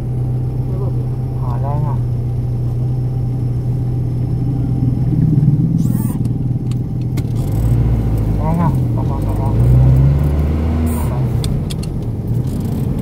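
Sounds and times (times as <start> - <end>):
car engine and road drone: 0.0 - 13.0
short noise burst: 4.5 - 6.4.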